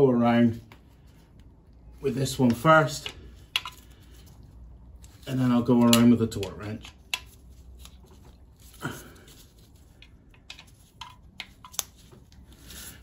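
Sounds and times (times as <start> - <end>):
hand tool clicks and taps: 3.0 - 3.8.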